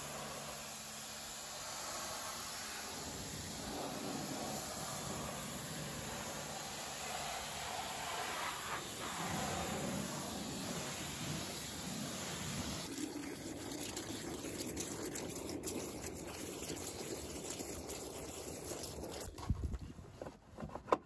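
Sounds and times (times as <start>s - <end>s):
pressure washer hissing: 0.0s - 12.9s
water churning in bucket: 0.0s - 19.8s.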